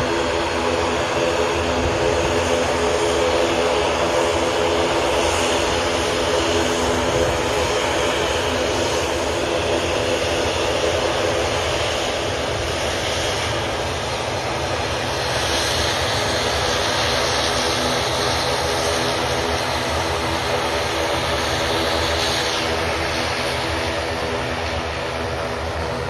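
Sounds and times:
propeller airplane engines droning: 0:00.0 - 0:26.0.

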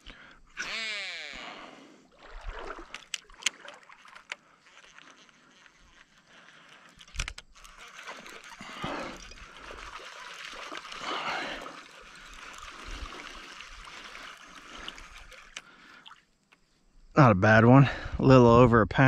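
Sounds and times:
fish splashing in water: 0:02.1 - 0:06.0, 0:07.6 - 0:16.3.

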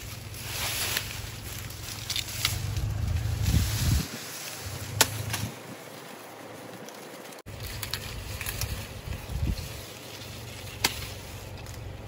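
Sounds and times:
wind rumbling on microphone: 0:01.2 - 0:06.9, 0:07.8 - 0:09.9
machete chopping sugarcane: 0:04.9 - 0:05.6, 0:10.6 - 0:11.8.

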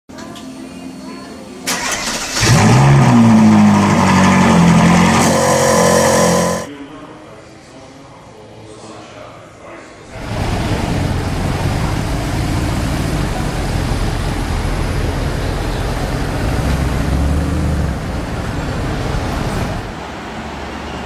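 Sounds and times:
car engine pulling away: 0:01.7 - 0:06.7, 0:10.1 - 0:19.9.

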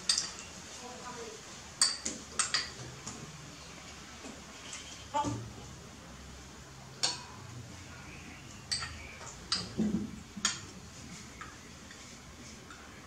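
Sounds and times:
spoon clinking against ceramic bowl: 0:08.7 - 0:09.8.

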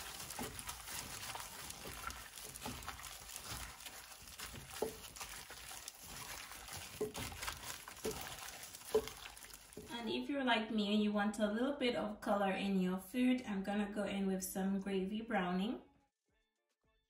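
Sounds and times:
meat squelching: 0:00.0 - 0:10.0
plastic glove crinkling: 0:00.0 - 0:10.0.

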